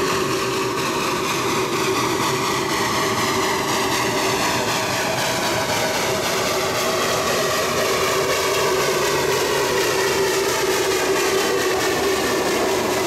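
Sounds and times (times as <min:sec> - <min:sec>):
rush of steam and exhaust: 0:00.0 - 0:13.0
steam locomotive passing: 0:00.0 - 0:13.0.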